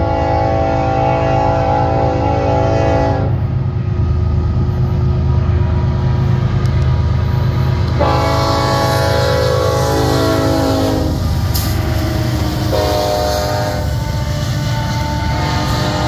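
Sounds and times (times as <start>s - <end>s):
train air horn blasts: 0.0s - 3.4s, 8.0s - 16.0s
locomotive rumble: 0.0s - 16.0s.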